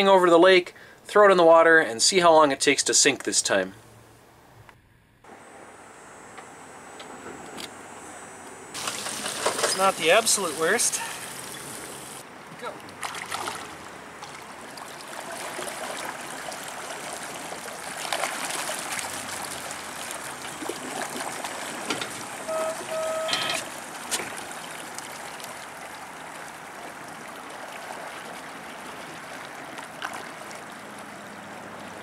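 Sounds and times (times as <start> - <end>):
water churning and splashing: 8.8 - 32.0
short beeps: 22.5 - 23.7.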